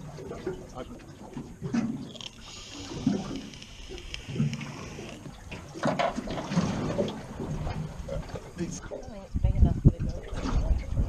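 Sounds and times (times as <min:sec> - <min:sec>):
water lapping against boat hull: 0:00.0 - 0:11.0
steady hiss: 0:02.1 - 0:05.4.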